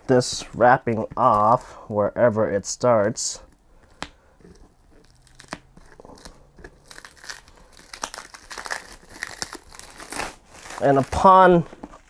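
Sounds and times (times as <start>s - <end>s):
plastic cling wrap crinkling: 3.8s - 12.0s.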